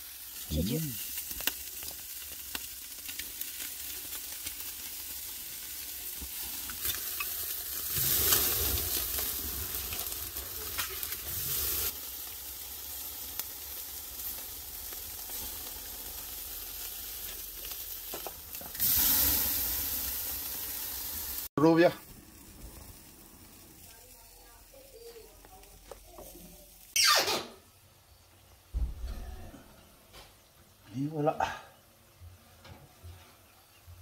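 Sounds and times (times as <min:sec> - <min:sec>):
flames flaring: 0:00.0 - 0:27.0
meat sizzling on a charcoal grill: 0:00.0 - 0:27.0.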